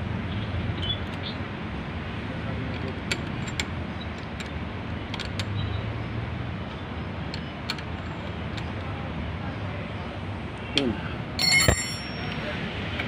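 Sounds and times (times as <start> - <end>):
wrench metal clicks: 2.7 - 5.6, 7.3 - 8.9.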